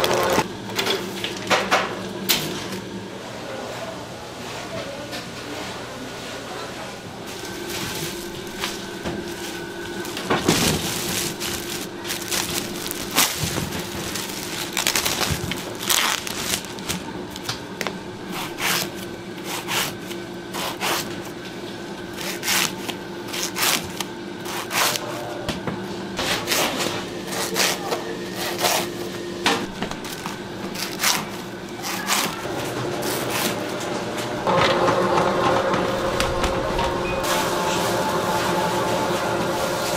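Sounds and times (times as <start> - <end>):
steady low hum: 7.1 - 39.9
plastic bags rustling: 7.2 - 20.2, 26.2 - 33.7
bread rolls crackling and knocking: 7.7 - 19.0.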